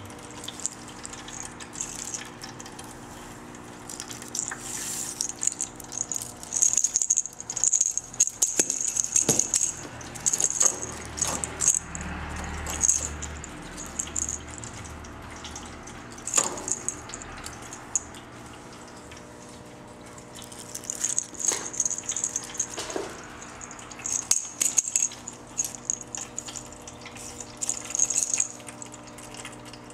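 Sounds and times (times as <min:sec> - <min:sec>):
cat-toy ball rattle jingling: 0:00.4 - 0:03.1, 0:03.8 - 0:18.1, 0:20.4 - 0:29.9.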